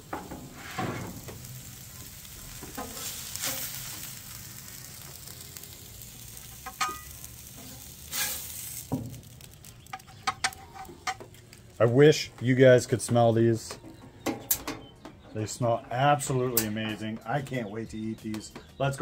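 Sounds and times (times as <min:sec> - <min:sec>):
fish sizzling on griddle: 0:00.0 - 0:11.6
metal spatula scraping griddle: 0:00.4 - 0:01.2, 0:06.6 - 0:08.8.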